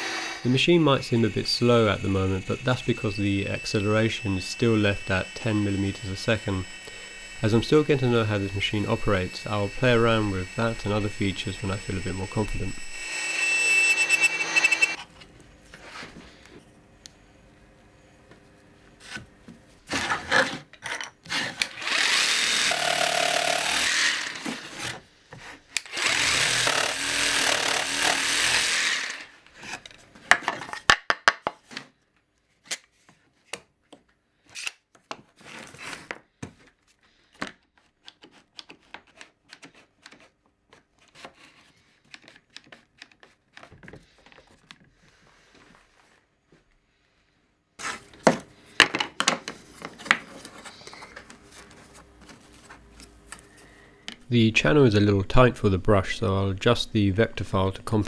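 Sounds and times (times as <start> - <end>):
jigsaw cutting wood: 0.0 - 15.0, 21.3 - 25.0, 25.9 - 29.4
clicks and taps handling pieces: 37.3 - 41.3, 42.0 - 44.9.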